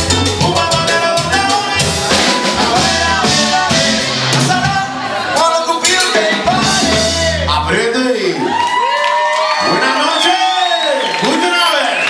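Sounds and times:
horns: 0:00.0 - 0:07.7
person singing: 0:00.0 - 0:07.7
congas: 0:00.0 - 0:07.8
drum kit: 0:00.0 - 0:07.8
bass guitar: 0:00.0 - 0:08.0.

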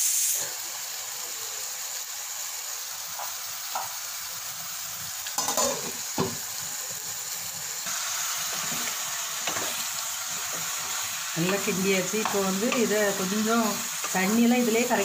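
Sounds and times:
chicken sizzling in oil: 0:00.0 - 0:15.0
wooden spatula stirring in pan: 0:08.4 - 0:15.0.

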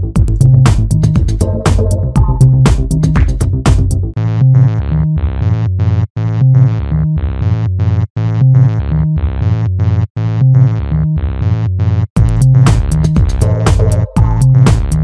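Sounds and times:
synthesizer chords: 0:00.0 - 0:04.7, 0:12.2 - 0:15.0
bass line: 0:00.0 - 0:15.0.

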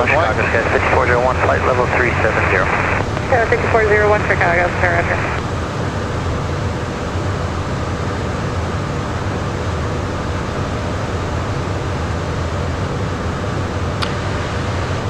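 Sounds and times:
jet cockpit airflow and engine: 0:00.0 - 0:15.0
low hum: 0:00.0 - 0:15.0.

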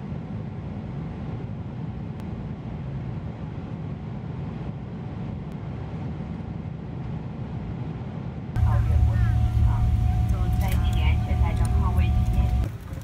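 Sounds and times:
airliner cabin engine rumble: 0:00.0 - 0:13.0.

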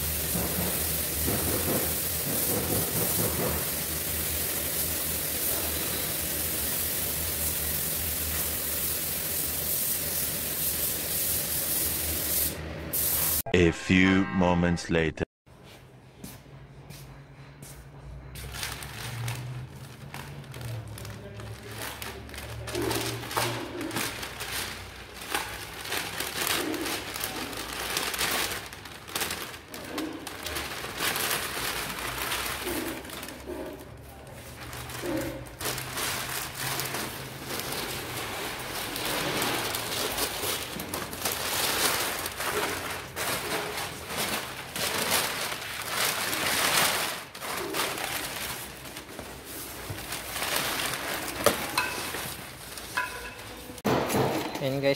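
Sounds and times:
paper crinkling and rustling: 0:18.4 - 0:53.0.

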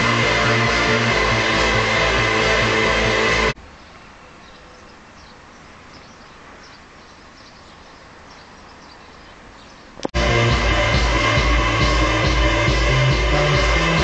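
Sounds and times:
music: 0:00.0 - 0:03.6, 0:10.2 - 0:14.0
steady outdoor hiss: 0:00.0 - 0:14.0
faint bird chirps: 0:03.6 - 0:10.0.

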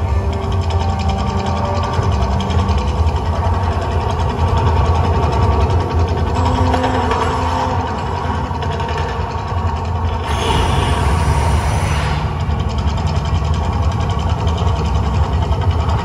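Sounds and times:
deep steady rumble: 0:00.0 - 0:16.0
gas flame jets whooshing: 0:10.2 - 0:13.3.

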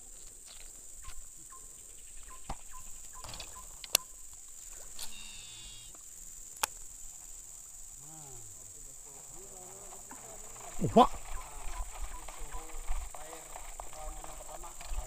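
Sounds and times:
high-pitched insect drone: 0:00.1 - 0:15.0
sharp clicks: 0:03.8 - 0:04.1.

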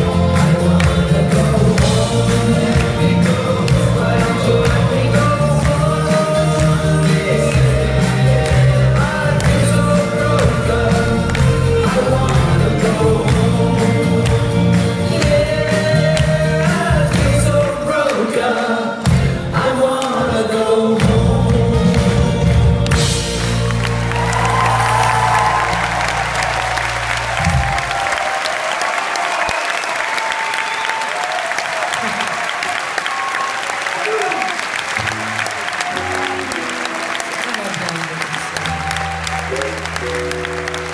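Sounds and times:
audience applause: 0:00.0 - 0:18.4, 0:22.8 - 0:40.9
backing vocals: 0:00.0 - 0:22.9
live pop band playing: 0:00.0 - 0:28.3, 0:35.0 - 0:40.9.

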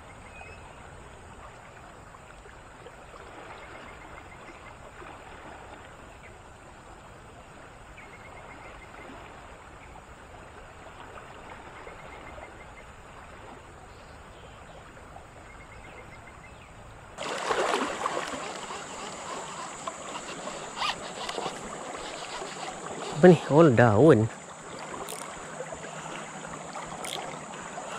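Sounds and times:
shallow river flowing: 0:00.0 - 0:27.9
water rushing around legs: 0:17.2 - 0:27.9.

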